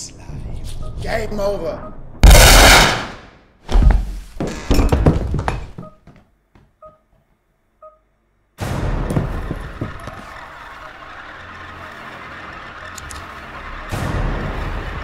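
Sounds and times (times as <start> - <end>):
loud pistol shot: 2.2 - 3.2
heavy thud: 3.7 - 4.3, 8.6 - 10.0.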